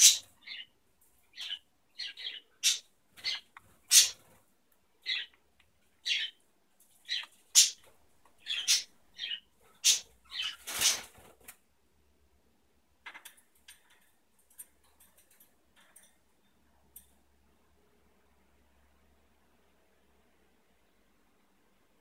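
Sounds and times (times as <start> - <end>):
cockatiels chirping: 1.4 - 4.2, 7.1 - 11.0.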